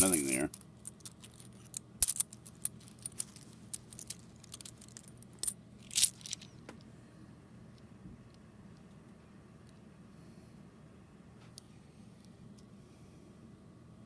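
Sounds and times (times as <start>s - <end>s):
coins clinking together: 0.0s - 6.4s.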